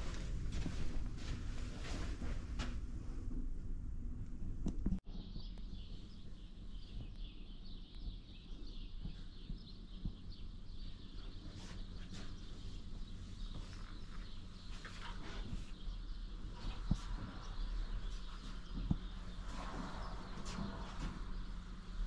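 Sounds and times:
steady low rumble: 0:00.0 - 0:22.0
birds chirping: 0:05.1 - 0:22.0.

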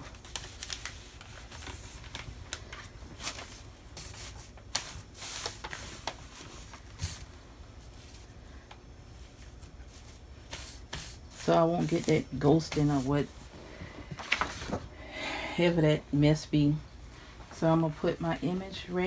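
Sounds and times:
paper and fabric rustling: 0:00.0 - 0:08.5, 0:09.2 - 0:13.4, 0:14.1 - 0:14.8.

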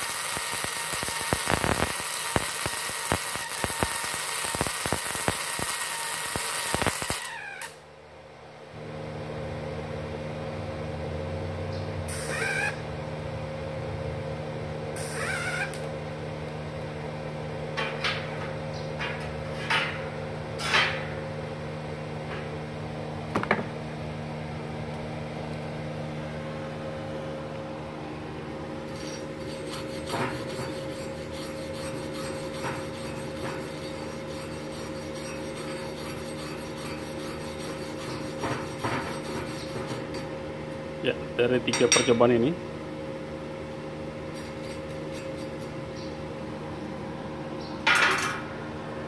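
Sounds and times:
welding machine hum: 0:00.0 - 0:07.9, 0:08.8 - 0:24.0, 0:24.8 - 0:41.5
wire brush scrubbing steel: 0:28.9 - 0:40.3.

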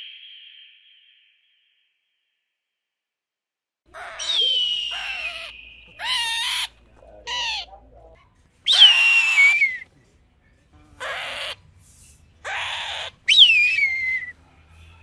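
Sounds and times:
eagle screaming: 0:03.9 - 0:07.7, 0:08.7 - 0:09.8, 0:12.4 - 0:14.3.

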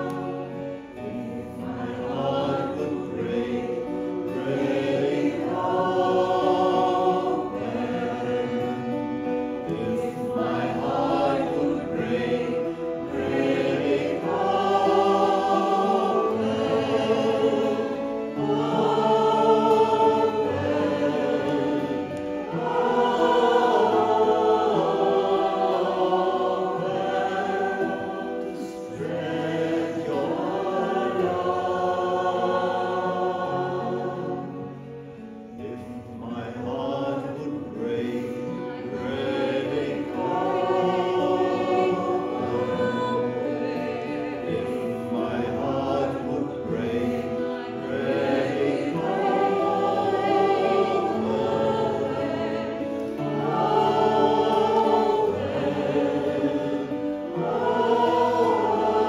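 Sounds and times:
acoustic guitar: 0:00.0 - 0:59.0
harmonium: 0:00.0 - 0:59.0
woman and man singing: 0:35.6 - 0:50.1.

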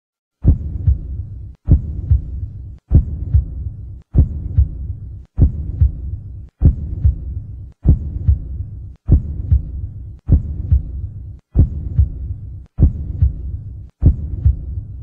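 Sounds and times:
heartbeat double thump: 0:00.4 - 0:15.0
steady low hum: 0:00.4 - 0:15.0.

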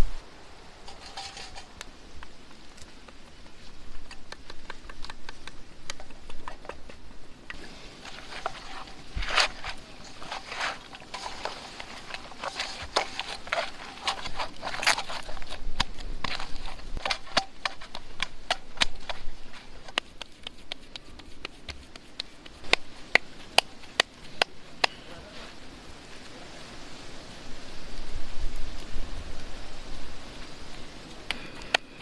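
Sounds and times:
hands patting dough: 0:03.0 - 0:25.0
dough kneading squishing: 0:19.0 - 0:24.4.

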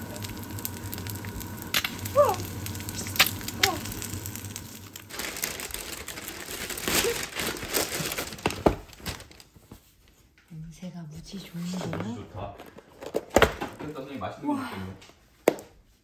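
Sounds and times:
egg sizzling in a pan: 0:00.0 - 0:07.2
plastic bag crinkling: 0:00.0 - 0:09.7.

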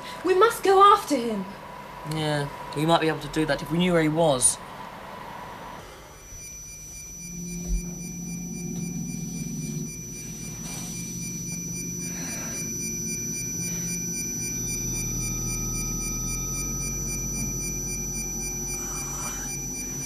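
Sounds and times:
steady sine tones: 0:05.3 - 0:20.0
low hum: 0:05.8 - 0:20.0
pulsing high tone: 0:05.9 - 0:20.0.

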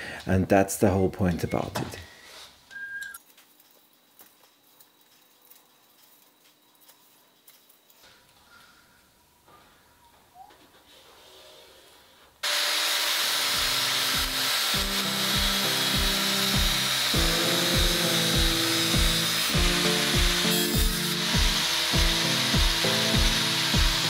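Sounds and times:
angle grinder cutting steel: 0:12.4 - 0:24.0
background music with beat: 0:14.8 - 0:24.0.

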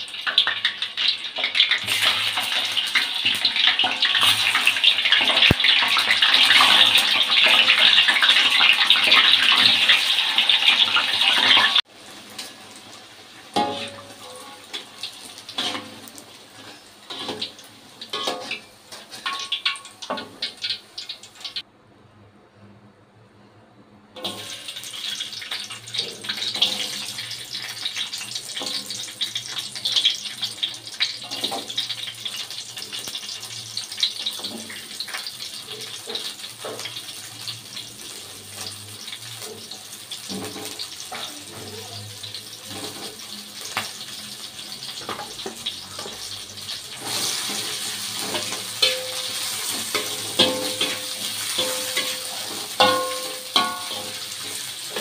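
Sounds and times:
vegetables sizzling in hot oil: 0:00.0 - 0:21.7, 0:24.2 - 0:55.0.

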